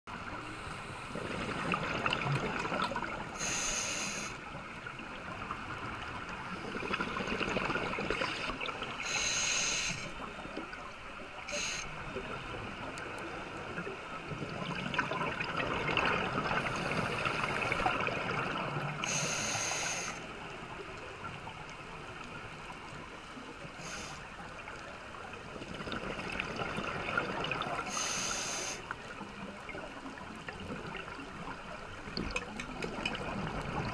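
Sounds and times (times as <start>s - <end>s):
exhaled bubbles rushing: 1.1s - 3.4s, 6.5s - 8.9s, 14.3s - 19.0s
hissing regulator inhale: 3.4s - 4.4s, 9.0s - 10.2s, 11.5s - 12.0s, 19.0s - 20.3s, 23.8s - 24.3s, 27.9s - 28.9s.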